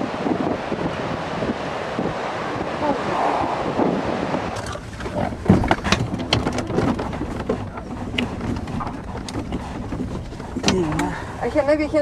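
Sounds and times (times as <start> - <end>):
wind rumbling on microphone: 0.0 - 12.0
distant voices: 2.2 - 12.0
sharp clicks and knocks: 4.6 - 11.2.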